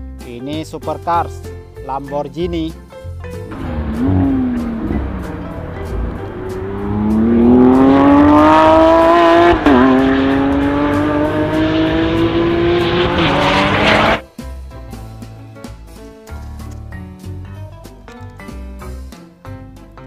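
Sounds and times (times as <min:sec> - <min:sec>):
background music: 0:00.0 - 0:20.0
sports car engine accelerating: 0:03.5 - 0:14.2.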